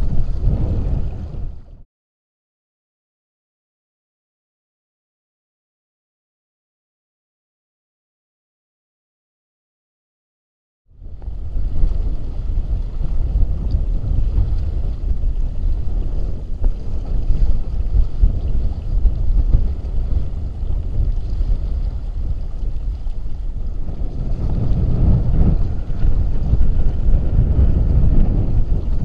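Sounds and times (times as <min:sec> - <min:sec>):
water rushing along hull: 0:00.0 - 0:01.8, 0:11.0 - 0:29.0
wind buffeting microphone: 0:00.0 - 0:01.8, 0:10.9 - 0:29.0.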